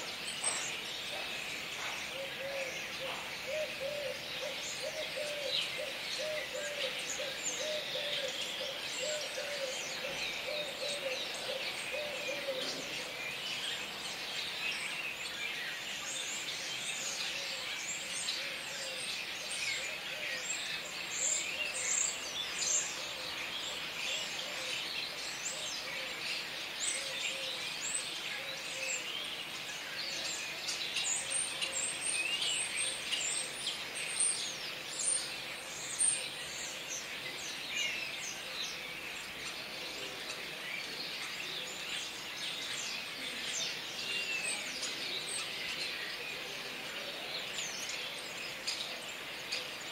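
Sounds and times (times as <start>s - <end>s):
starlings chattering: 0.0s - 18.7s.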